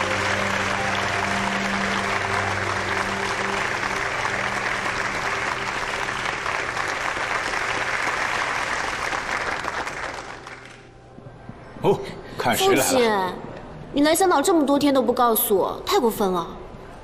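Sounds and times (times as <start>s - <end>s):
crowd applauding: 0.0s - 11.1s
low background music: 0.0s - 17.0s.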